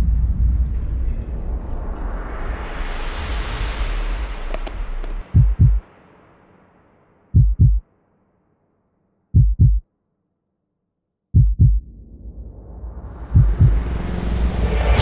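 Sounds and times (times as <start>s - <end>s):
slow heartbeat thumps: 5.2s - 5.8s, 7.4s - 7.8s, 9.4s - 9.8s, 11.4s - 11.8s, 13.3s - 13.9s.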